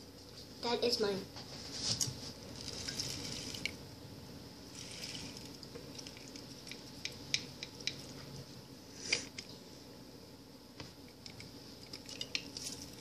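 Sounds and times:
juice dripping into liquid: 0:02.5 - 0:03.9, 0:04.6 - 0:08.6, 0:11.0 - 0:13.0.

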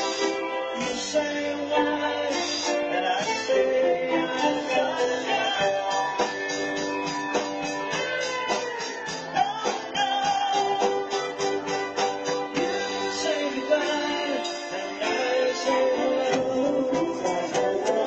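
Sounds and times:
electric guitar: 0:00.0 - 0:18.0
keyboard: 0:00.0 - 0:18.0
person singing: 0:00.0 - 0:18.0
drum beat: 0:04.3 - 0:18.0.

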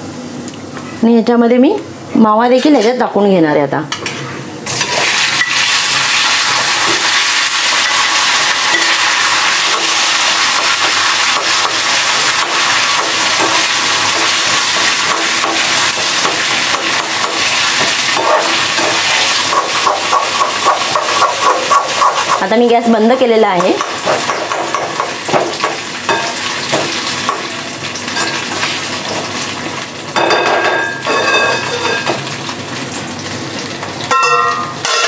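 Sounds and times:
food sizzling in hot oil: 0:04.6 - 0:35.0
steel spoon scraping a pan: 0:10.5 - 0:22.5.

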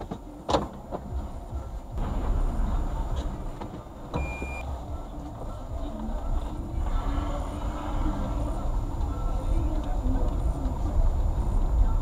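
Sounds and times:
low car cabin rumble: 0:00.0 - 0:12.0
car door shutting: 0:03.2 - 0:04.6
short electronic beep: 0:04.2 - 0:04.7.

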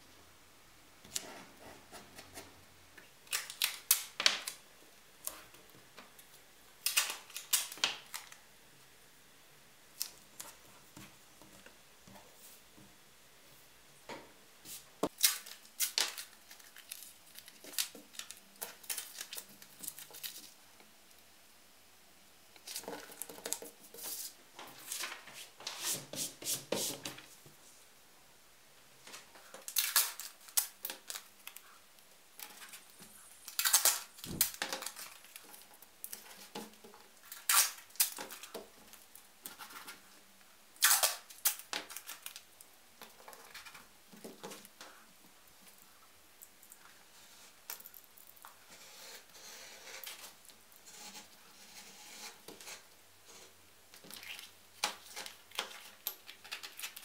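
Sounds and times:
paper sheets rustling: 0:23.9 - 0:27.3
masking tape ripping: 0:33.4 - 0:35.2, 0:37.3 - 0:38.2, 0:40.8 - 0:42.3.

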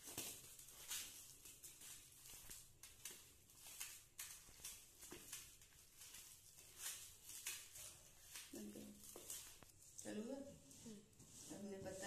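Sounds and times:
hand squishing thick paste: 0:00.0 - 0:12.0.

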